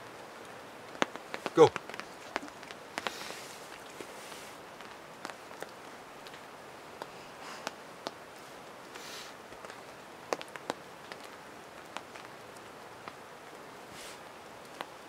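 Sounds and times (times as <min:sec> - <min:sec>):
steady light hiss: 0:00.0 - 0:15.0
rain jacket rustling: 0:01.3 - 0:05.5.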